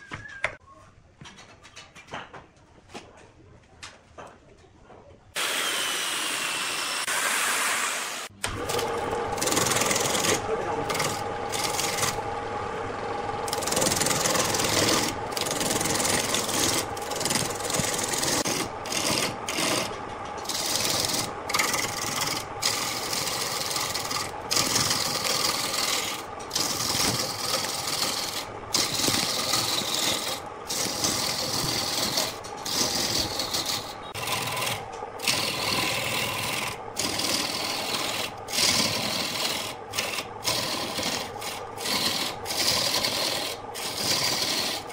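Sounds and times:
lathe motor humming: 5.4 - 44.9
turning tool cutting wood: 5.4 - 44.9.

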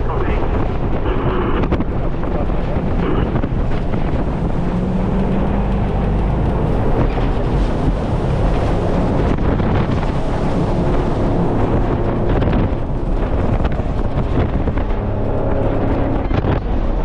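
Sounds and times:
boat engine running: 0.0 - 17.0
wind buffeting microphone: 0.0 - 17.0.

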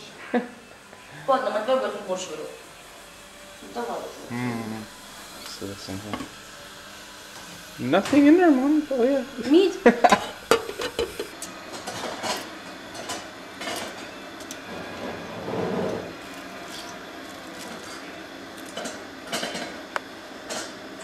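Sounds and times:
dishes and utensils clattering: 10.0 - 14.0, 18.6 - 19.8.

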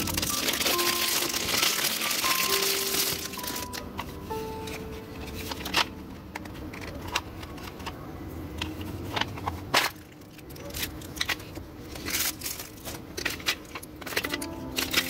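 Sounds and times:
plastic packaging crinkling: 0.0 - 8.0, 8.8 - 15.0
soft background music: 0.0 - 9.2, 14.0 - 15.0.

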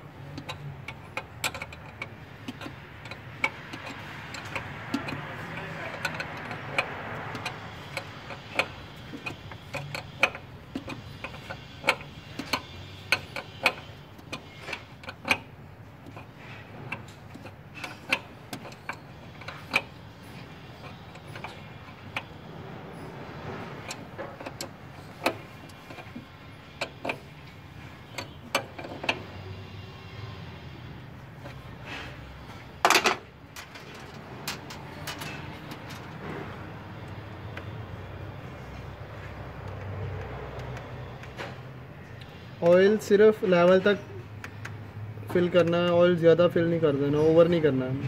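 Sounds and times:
wrench clicking on metal fittings: 0.3 - 22.4.

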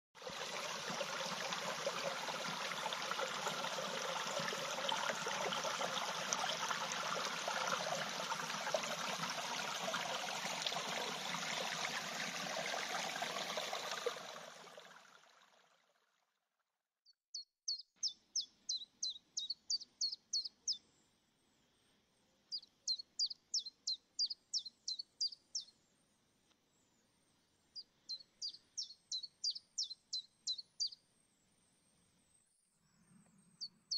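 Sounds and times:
stream running: 0.2 - 16.3.

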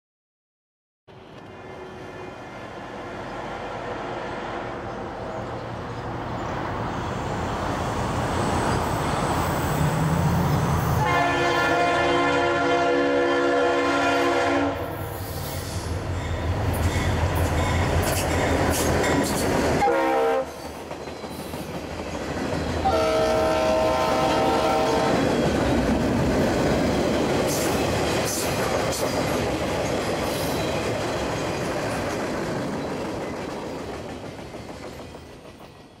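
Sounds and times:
diesel locomotive engine rumble: 1.1 - 36.0
train air horn blasts: 11.0 - 15.0, 19.8 - 20.6, 22.8 - 25.3
train wheels clicking over rail joints: 25.1 - 36.0.

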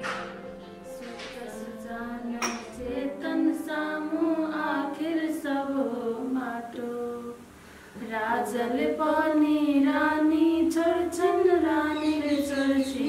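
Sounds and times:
voices singing devotional song: 0.0 - 13.0.

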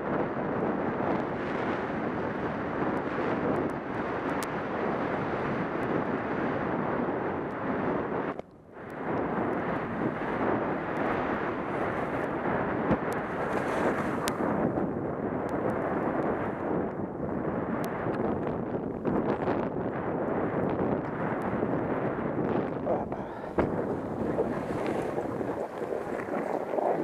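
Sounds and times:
wind rushing over microphone: 0.0 - 27.0
skis sliding on snow: 13.3 - 14.3, 23.4 - 27.0.

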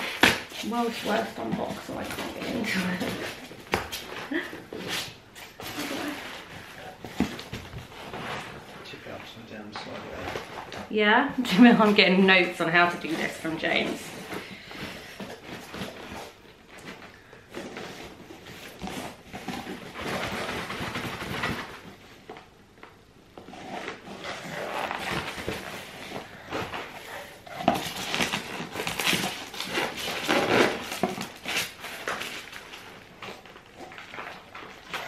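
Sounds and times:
cardboard box being torn open: 27.6 - 32.8.

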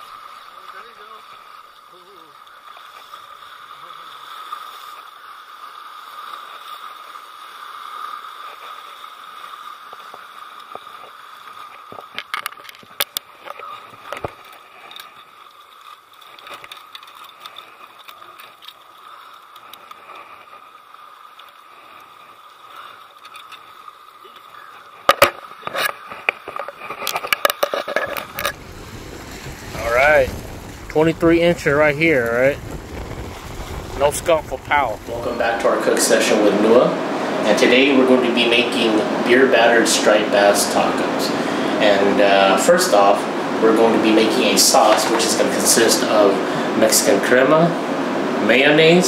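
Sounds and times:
water on lakeshore: 0.0 - 49.0
wind: 0.0 - 49.0
knocks and splashes of fish: 25.0 - 36.0.

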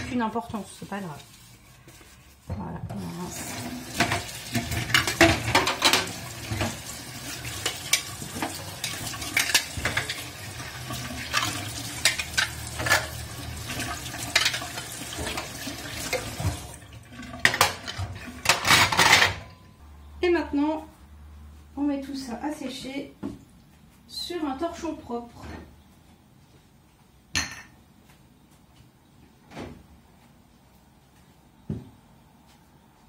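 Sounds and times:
tap water running into sink: 3.3 - 18.4.

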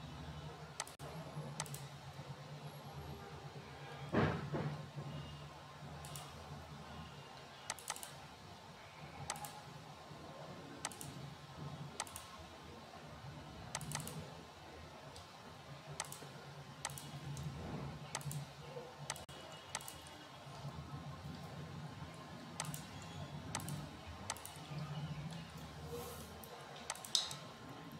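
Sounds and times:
computer mouse clicking: 0.8 - 1.0, 1.6 - 1.9, 6.0 - 6.3, 7.7 - 8.2, 9.3 - 9.6, 10.8 - 11.2, 12.0 - 12.3, 13.7 - 14.2, 16.0 - 17.5, 18.1 - 20.1, 22.6 - 24.7, 26.8 - 27.4.

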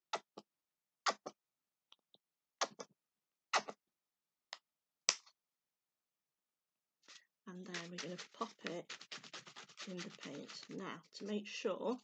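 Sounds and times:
paint tube squeezing: 7.0 - 11.2.

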